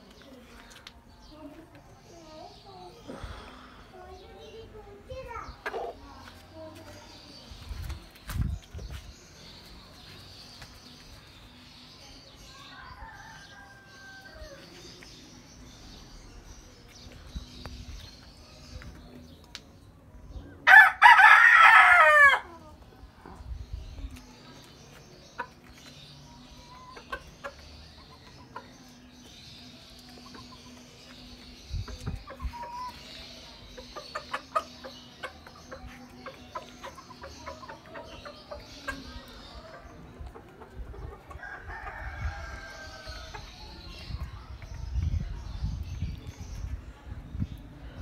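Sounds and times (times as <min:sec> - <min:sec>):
chickens clucking: 0:04.1 - 0:07.0, 0:22.2 - 0:46.8.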